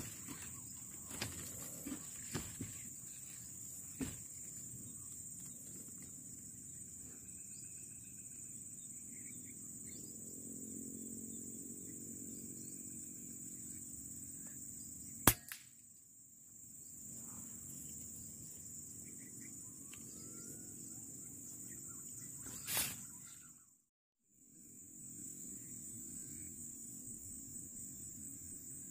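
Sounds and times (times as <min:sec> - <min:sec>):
insect chirring: 0:00.0 - 0:23.6
air rifle crack: 0:15.3 - 0:15.7.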